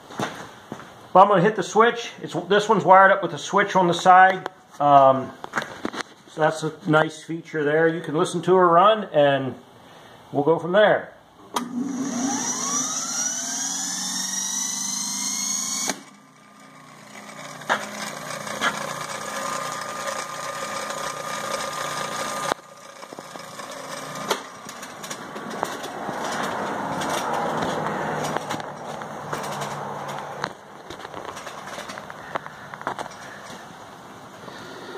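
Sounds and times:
electric motor whine: 11.6 - 25.3
low motor hum: 11.6 - 32.4.

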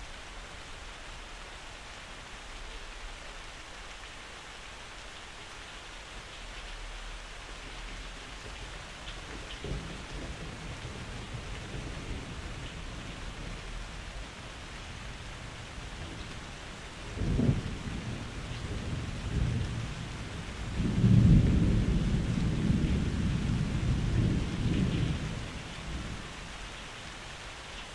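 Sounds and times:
steady rain: 0.0 - 27.9
rolling thunder: 9.4 - 14.2, 17.0 - 26.3.

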